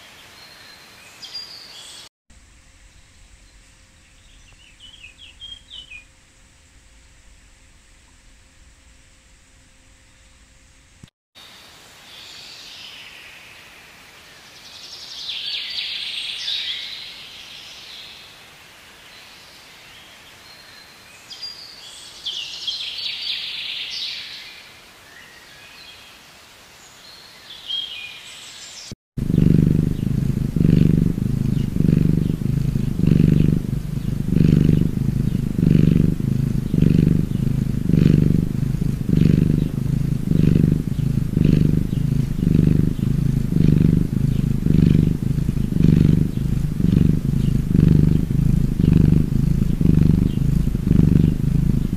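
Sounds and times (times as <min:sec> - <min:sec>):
songbirds chirping: 0:00.0 - 0:10.9, 0:11.8 - 0:51.9
faint background hiss: 0:00.0 - 0:51.9
cat purring: 0:29.2 - 0:51.9.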